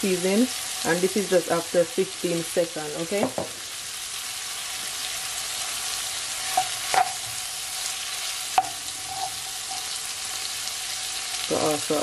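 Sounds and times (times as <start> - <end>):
vegetables sizzling in a wok: 0.0 - 12.0
wooden spoon knocking on pan: 3.1 - 3.6, 8.6 - 8.8.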